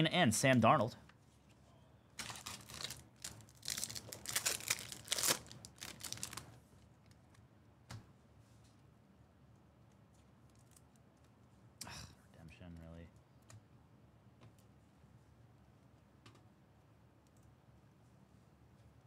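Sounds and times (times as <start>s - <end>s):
wrapper tearing and crinkling: 2.2s - 6.5s.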